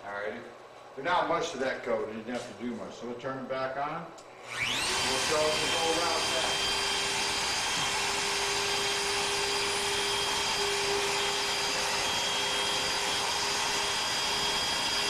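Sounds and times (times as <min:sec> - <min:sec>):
router spindle whine: 0:04.4 - 0:15.0.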